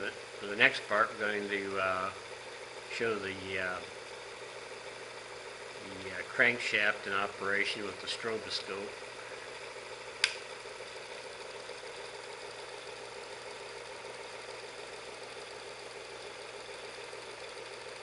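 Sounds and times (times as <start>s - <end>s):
engine crankshaft whirring: 0.0s - 18.0s
sharp click: 10.2s - 10.5s.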